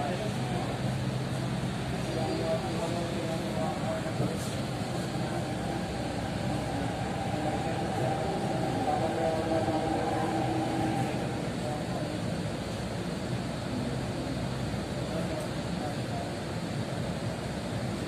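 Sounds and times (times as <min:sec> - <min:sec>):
train wheels rumbling: 0:00.0 - 0:12.6
humming whine of motors: 0:00.0 - 0:18.0.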